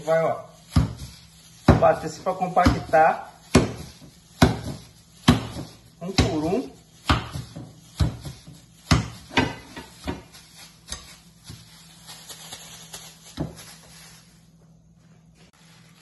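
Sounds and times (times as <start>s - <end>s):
meat slapping against a plate: 0.6s - 11.7s.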